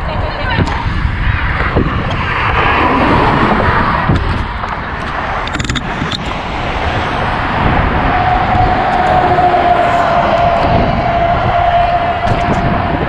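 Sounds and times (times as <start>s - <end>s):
passing traffic: 0.0s - 13.0s
wind buffeting microphone: 0.0s - 13.0s
sharp clicks: 4.1s - 6.4s.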